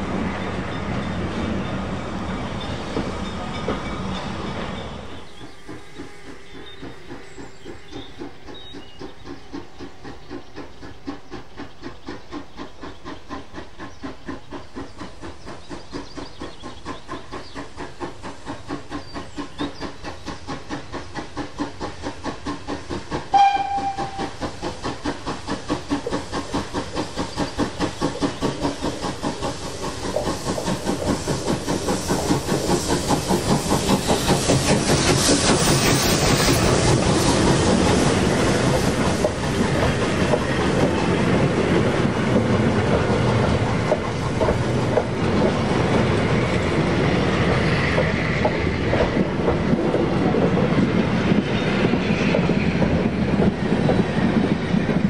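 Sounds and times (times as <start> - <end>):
steam locomotive exhaust beats: 0.0 - 55.0
train coaches rumbling: 0.0 - 55.0
steam whistle blast: 23.3 - 24.4.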